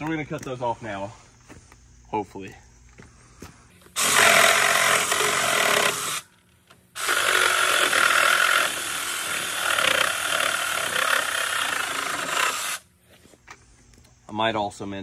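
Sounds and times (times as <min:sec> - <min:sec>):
reciprocating saw cutting nails: 0:04.0 - 0:06.3, 0:07.0 - 0:12.8.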